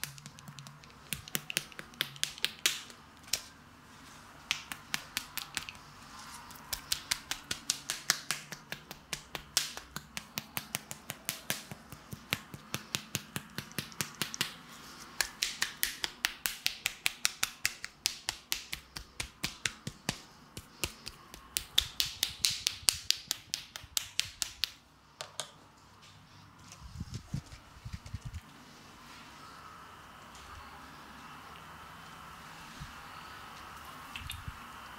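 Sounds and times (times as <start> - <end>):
hands slapping wet skin: 0.0 - 3.5, 4.4 - 5.9, 6.5 - 24.8.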